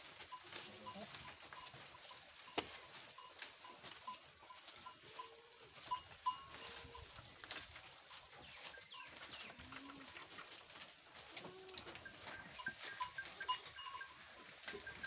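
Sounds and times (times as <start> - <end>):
leaves rustling and tearing: 4.6 - 12.0.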